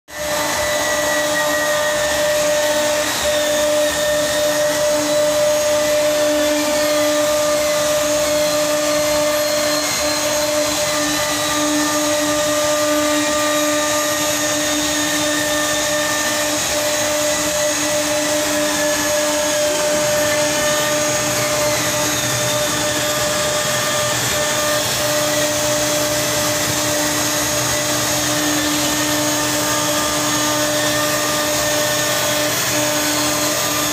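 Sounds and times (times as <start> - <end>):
machine whirring and whining: 0.1 - 33.9.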